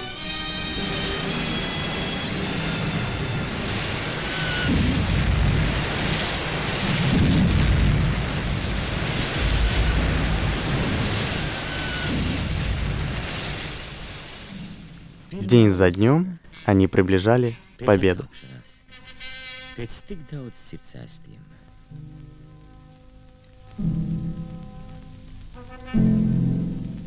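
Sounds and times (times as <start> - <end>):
continuous artillery rumble: 0.0 - 15.8
deep explosion booms: 2.3 - 15.3.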